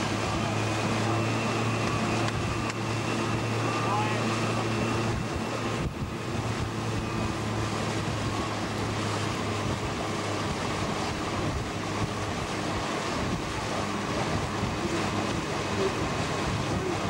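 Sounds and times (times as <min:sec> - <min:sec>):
boat engine humming: 0:00.0 - 0:17.0
water rushing past hull: 0:00.0 - 0:17.0
wind noise on microphone: 0:04.9 - 0:17.0.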